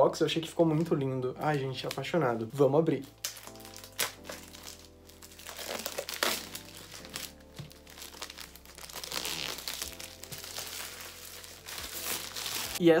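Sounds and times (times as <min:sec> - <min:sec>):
faint background music: 0:00.0 - 0:13.0
plastic packaging crinkling: 0:01.5 - 0:12.8.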